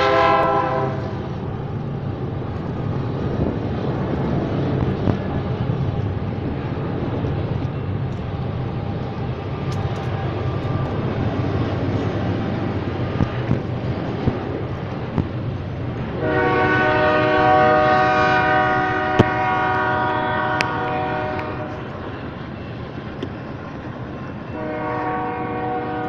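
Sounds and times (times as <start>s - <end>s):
train horn chord: 0.0s - 1.3s, 16.2s - 22.0s, 24.5s - 26.0s
freight train rumbling: 0.0s - 26.0s.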